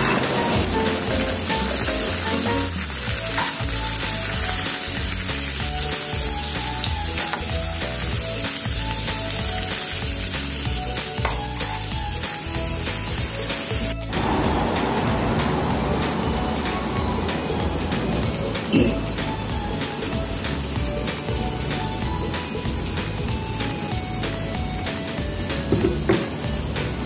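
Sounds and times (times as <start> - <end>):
background music with bass line: 0.0 - 27.0
vegetables sizzling in a frying pan: 0.0 - 27.0.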